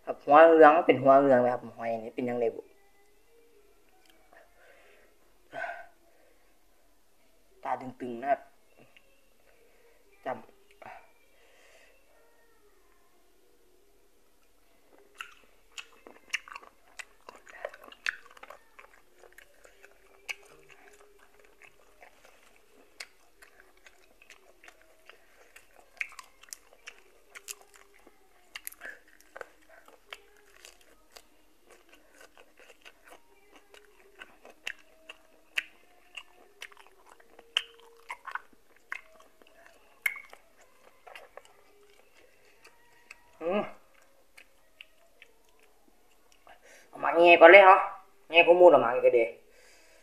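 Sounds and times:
person chewing: 14.9s - 46.6s.

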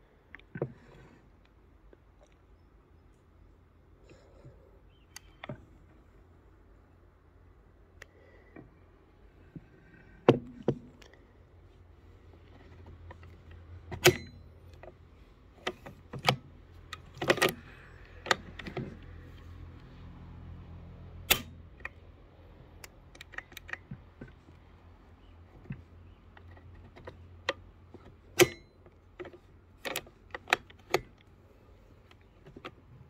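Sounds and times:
rifle bolt clicking and clacking: 21.3s - 22.0s, 28.3s - 31.3s.

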